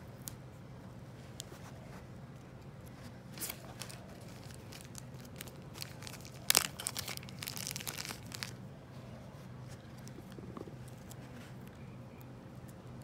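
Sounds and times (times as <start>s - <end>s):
crackling: 0.0s - 8.7s, 9.5s - 13.0s
sticker crinkling and rubbing: 1.3s - 8.6s.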